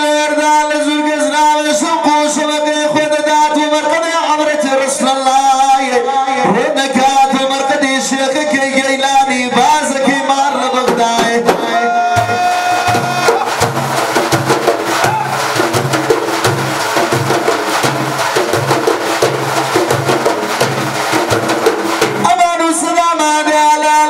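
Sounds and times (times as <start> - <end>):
frame drums playing: 10.7 - 22.7.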